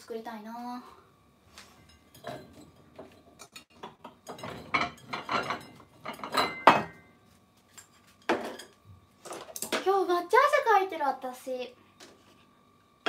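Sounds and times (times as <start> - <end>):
dishes clinking and clattering: 1.9 - 7.1, 7.7 - 9.8.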